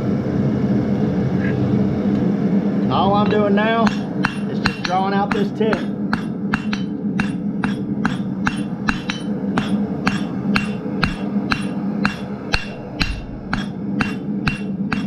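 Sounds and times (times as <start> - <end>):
steady low hum: 0.0 - 15.0
hammer striking steel on anvil: 3.2 - 15.0.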